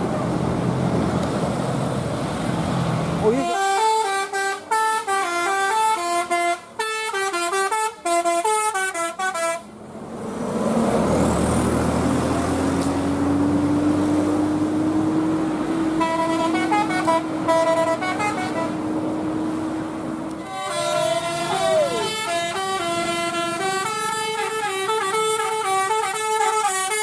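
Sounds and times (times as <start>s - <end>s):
loud bus engine: 0.0s - 27.0s
bus air horn melody: 3.3s - 9.7s, 15.9s - 18.8s, 20.4s - 27.0s.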